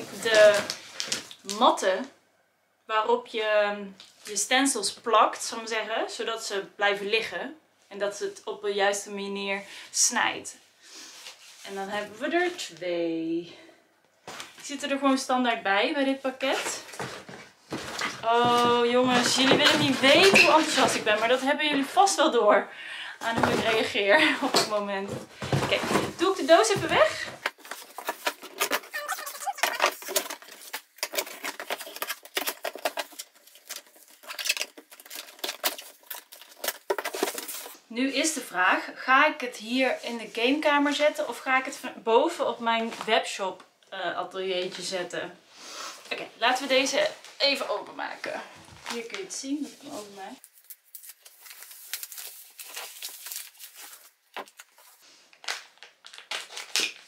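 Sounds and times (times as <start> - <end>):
protective wrapping crinkling: 0.0 - 1.6, 25.8 - 37.8, 48.8 - 57.0.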